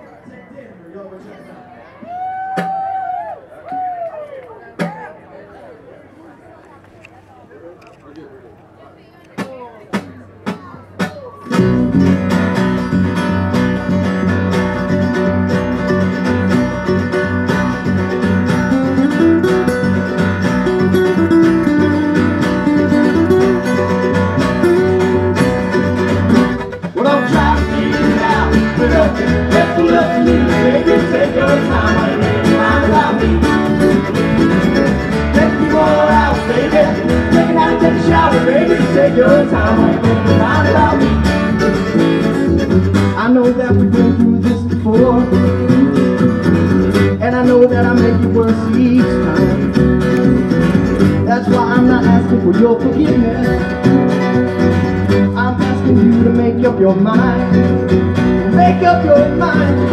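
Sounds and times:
country string band playing: 9.3 - 59.9.

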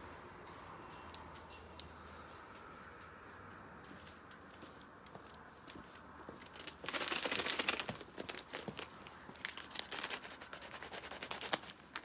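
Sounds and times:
plastic packet crinkling: 6.6 - 12.0.

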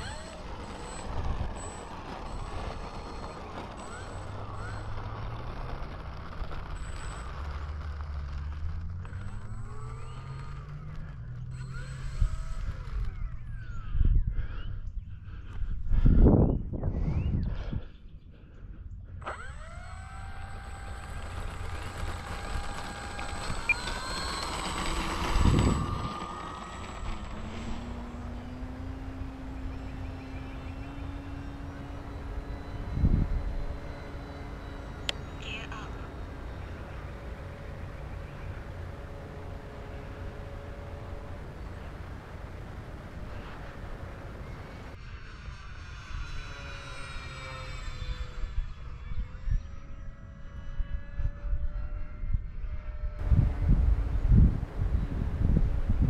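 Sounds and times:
faint high whine: 0.0 - 14.6, 19.2 - 56.0
model plane motor hum: 0.0 - 16.3, 18.6 - 56.0
wind rush: 53.2 - 56.0.

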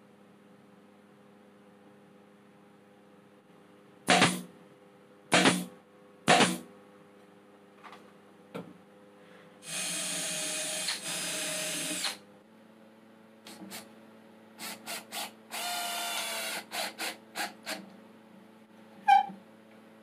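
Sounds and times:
cordless drill driving screw into wood: 9.7 - 12.2, 14.6 - 17.8.

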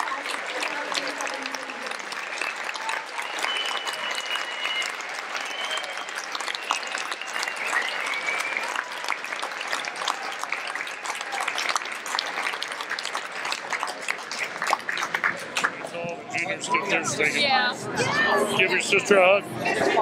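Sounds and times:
audience applauding: 0.0 - 15.9.

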